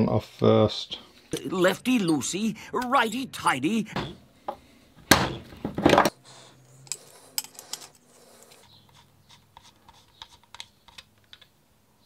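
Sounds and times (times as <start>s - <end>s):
metal tool clicks and scrapes: 6.6s - 11.4s.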